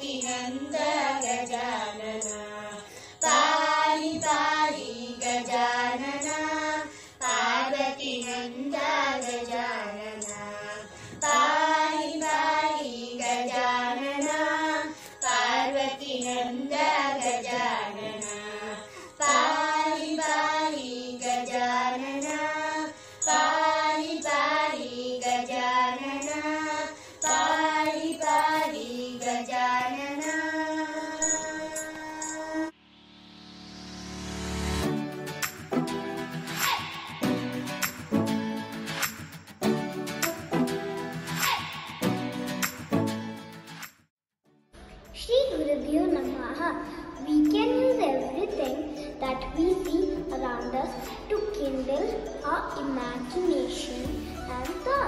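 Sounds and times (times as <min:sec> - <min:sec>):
children singing in unison: 0:00.0 - 0:32.7.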